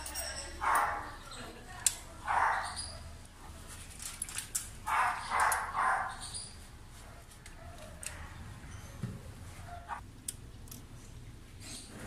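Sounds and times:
dog barking: 0.6 - 1.2, 2.1 - 3.2, 4.9 - 6.2, 9.6 - 10.0.

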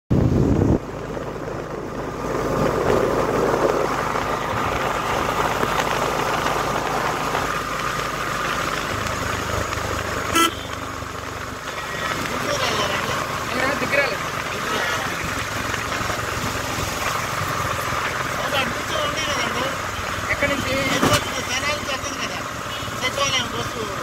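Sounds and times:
vehicle engine and road noise: 0.1 - 24.0
short horn toot: 10.3 - 10.8.

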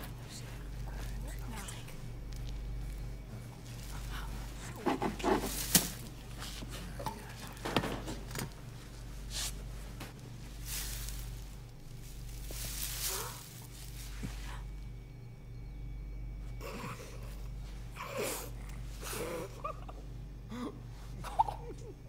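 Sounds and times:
steady low hum: 0.0 - 22.0
knocks and rustling: 3.4 - 9.0.

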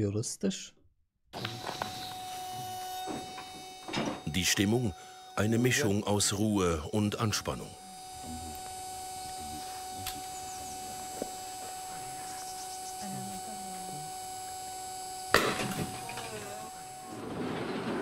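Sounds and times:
electrical hum: 1.3 - 18.0
bolt gun bang: 15.3 - 16.4.

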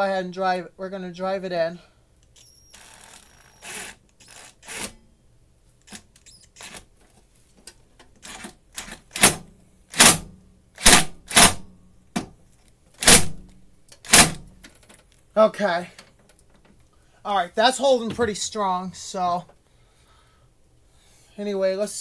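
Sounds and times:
impact driver bursts: 2.3 - 5.0, 8.2 - 11.6, 13.0 - 13.3, 14.0 - 14.5.

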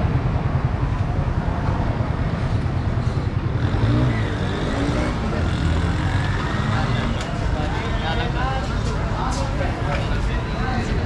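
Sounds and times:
low rumble of traffic: 0.0 - 11.0.

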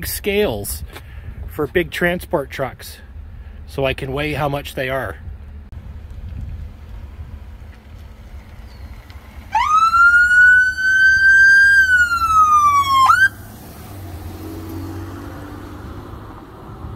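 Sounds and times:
police siren wailing: 9.5 - 13.4.

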